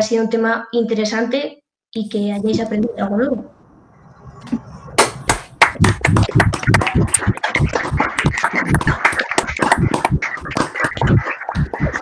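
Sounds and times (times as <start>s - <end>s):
hand clapping: 5.0s - 12.0s.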